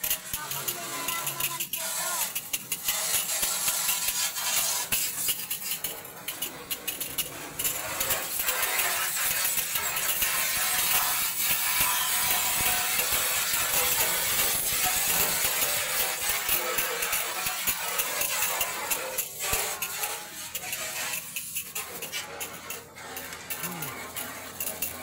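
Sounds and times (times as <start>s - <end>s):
hose water jet splattering on metal: 0.0s - 25.0s.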